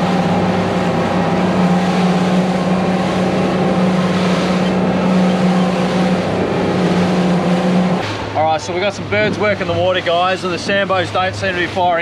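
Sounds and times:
motorboat engine running: 0.0 - 12.0
rush of wind and water: 0.0 - 12.0.

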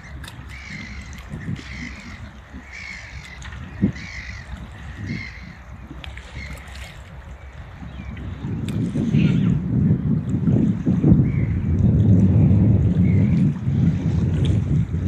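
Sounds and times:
gulls calling: 0.0 - 7.6
wind rumble on microphone: 0.0 - 15.0.

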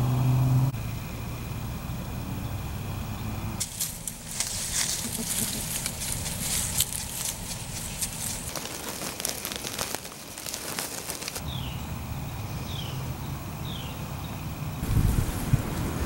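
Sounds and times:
low steady rumble: 0.0 - 10.2
goats rustling through dry leaves: 3.6 - 11.5
bird chirping: 11.4 - 14.4.

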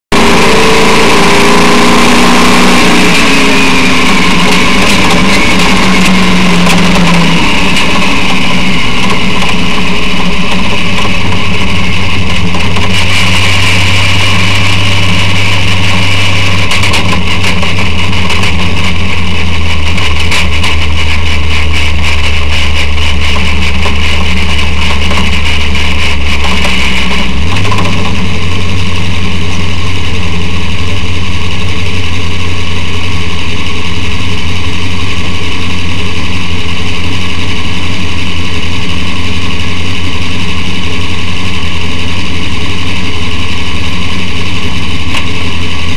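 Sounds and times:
truck engine running under load: 0.1 - 45.9
knocks and rattles: 3.0 - 30.4.

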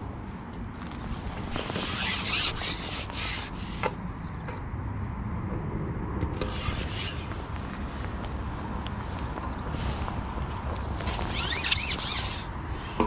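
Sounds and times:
wind rumbling on microphone: 0.0 - 13.0
microphone handling rustles: 0.6 - 3.5, 6.4 - 13.0.

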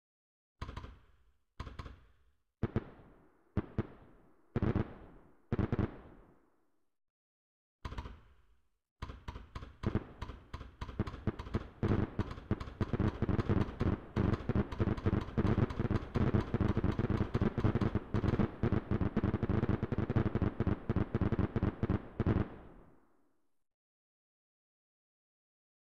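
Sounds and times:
fireworks bangs and crackles: 2.6 - 6.4, 9.8 - 23.0.

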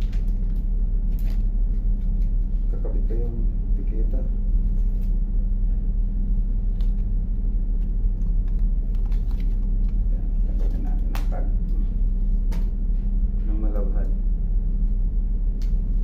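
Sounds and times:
ship machinery drone: 0.0 - 16.0
paper and cloth rustling: 8.4 - 11.4.

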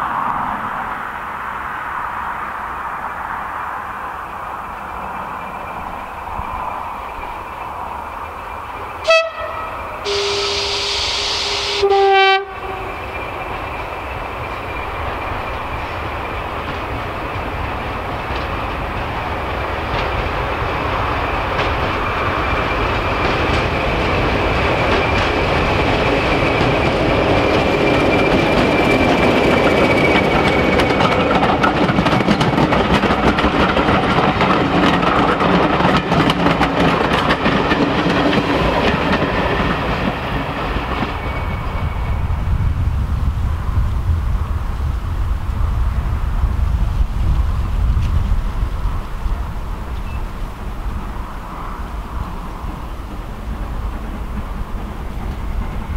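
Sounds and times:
diesel locomotive engine whine: 0.0 - 55.9
coach wheels clattering on rails: 12.4 - 43.5, 45.9 - 55.9.

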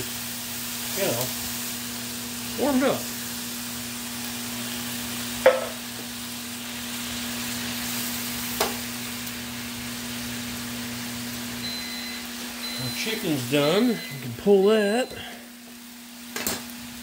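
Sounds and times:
pineapple sizzling in a pan: 0.0 - 17.0
utensil knocking on pan: 5.4 - 5.8.

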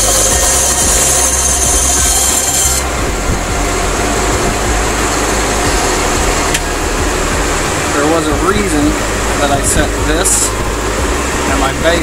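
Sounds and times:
saw blade cutting wood: 0.0 - 2.9
band saw running: 0.0 - 12.0.

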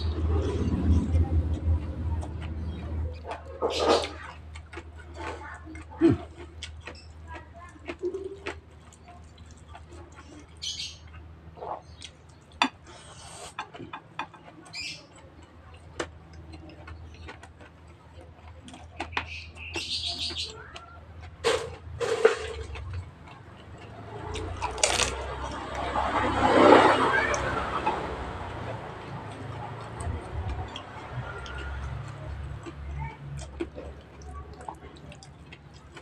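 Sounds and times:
wet chewing and lip smacks: 0.4 - 21.4, 22.6 - 25.8, 28.3 - 36.0
crunching: 15.7 - 36.0.

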